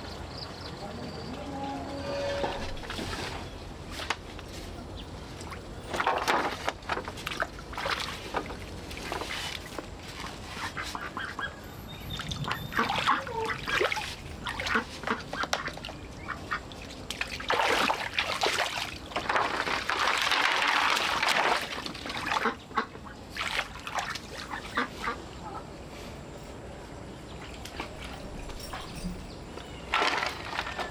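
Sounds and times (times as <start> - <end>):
poultry honking calls: 0.8 - 2.8.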